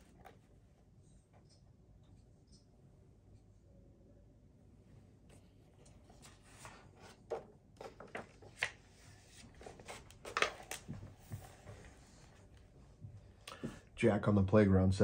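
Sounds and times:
book pages turning: 5.3s - 12.4s
soft knocks of pages and cover: 5.3s - 12.6s.

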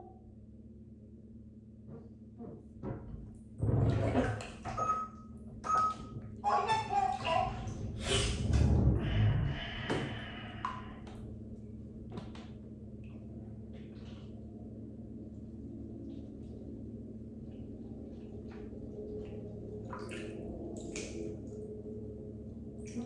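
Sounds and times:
steady low hum: 0.0s - 23.0s
faint water drips: 10.0s - 11.7s, 17.4s - 21.8s.

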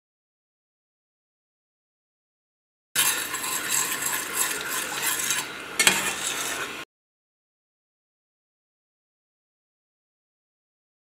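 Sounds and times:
metal spoon scraping a pan: 3.0s - 6.9s.

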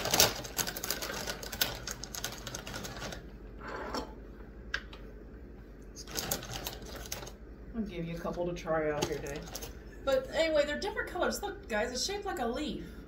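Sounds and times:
plastic chip bag crinkling: 0.0s - 3.3s, 6.0s - 7.4s, 9.0s - 9.8s.

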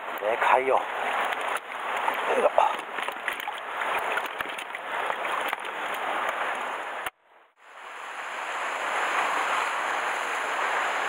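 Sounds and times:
sea surf on rocky shore: 0.0s - 11.0s.

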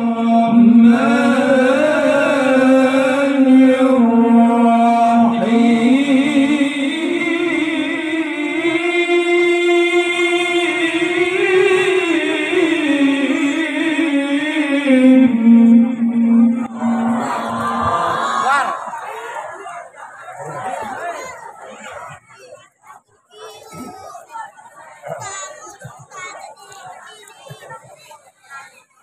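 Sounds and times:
men reciting melodically: 0.0s - 21.5s.

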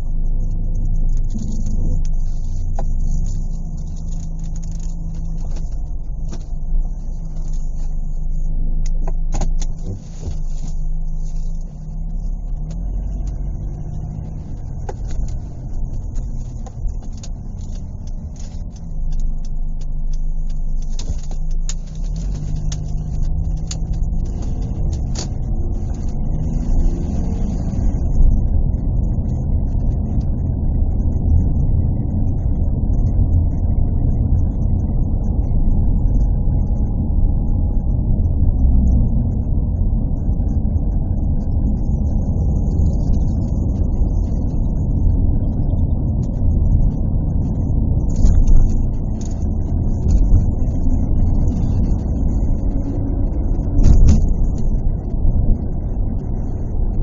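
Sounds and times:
small clicks and rattles: 0.0s - 28.5s, 41.5s - 57.0s
car engine hum: 0.0s - 57.0s
road rumble: 0.0s - 57.0s.

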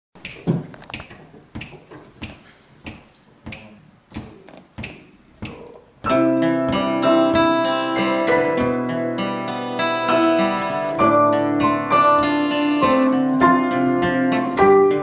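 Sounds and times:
acoustic guitar chords: 5.6s - 15.0s
piano chords: 6.1s - 15.0s.

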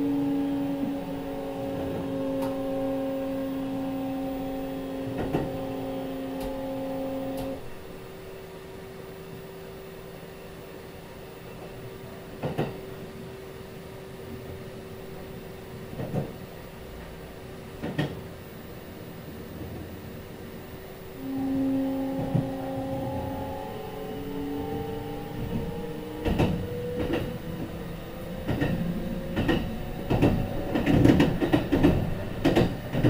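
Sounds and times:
train coasting rumble: 0.0s - 33.0s
train inverter tones: 0.0s - 33.0s
wheels clacking over rail joints: 28.4s - 33.0s.

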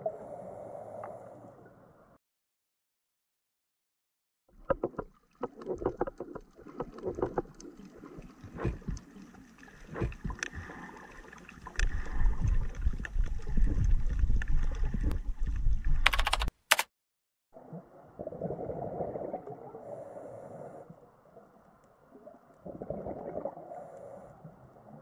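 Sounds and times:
low rumble of moving water: 4.5s - 16.0s, 17.6s - 25.0s
sharp underwater clicks: 4.6s - 10.7s, 16.0s - 16.9s.

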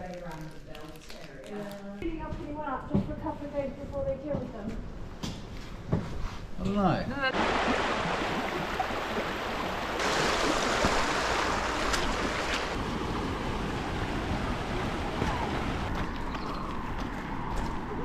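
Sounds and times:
stream water rushing over stones: 7.3s - 15.9s
wind rumbling on microphone: 7.4s - 18.0s.

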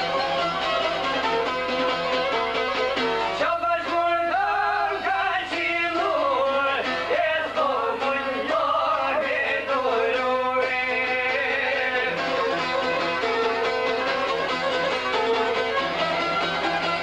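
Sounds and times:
string instruments: 0.0s - 17.0s
man singing ornamented melody: 3.4s - 12.4s.

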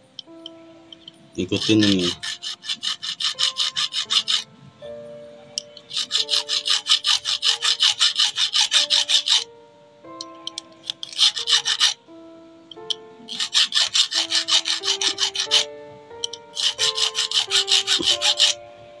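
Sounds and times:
background music: 0.0s - 19.0s
hand file rasping on metal: 1.4s - 4.5s, 5.9s - 9.4s, 10.5s - 12.0s, 13.3s - 15.7s, 16.6s - 18.6s.

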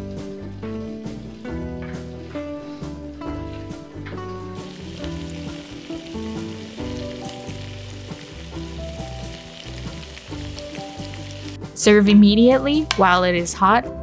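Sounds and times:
light background music: 0.0s - 14.0s
food bubbling and sizzling in pan: 4.6s - 11.7s.

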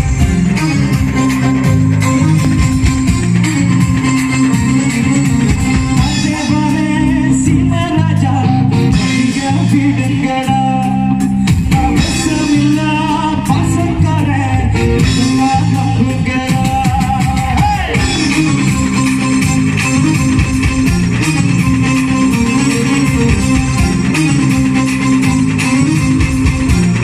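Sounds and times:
live band playing: 0.0s - 27.0s
man singing: 6.0s - 18.9s.

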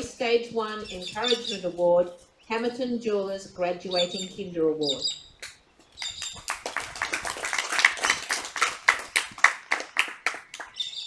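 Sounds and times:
audience clapping: 6.0s - 10.8s.

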